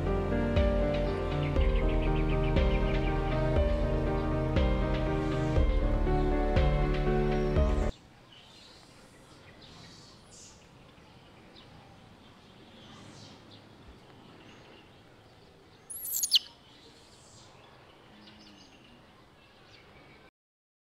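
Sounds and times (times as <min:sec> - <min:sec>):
faint high bird chirps: 0:14.4 - 0:20.3
high-pitched sweeping bird call: 0:15.9 - 0:16.6.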